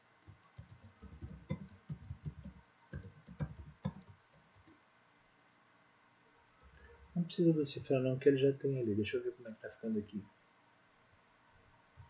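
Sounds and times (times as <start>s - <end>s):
computer keyboard typing: 0.2s - 4.7s.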